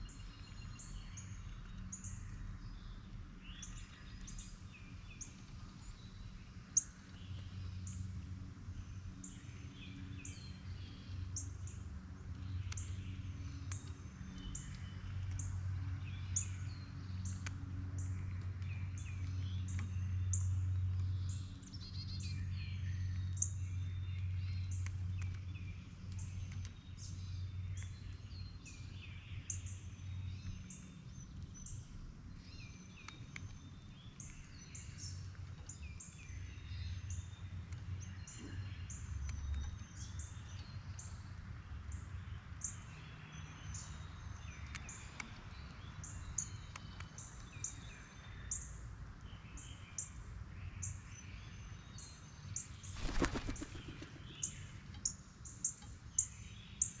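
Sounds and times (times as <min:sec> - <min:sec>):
small birds chirping: 0:00.0 - 0:57.0
bird wingbeats fluttering: 0:52.9 - 0:54.6.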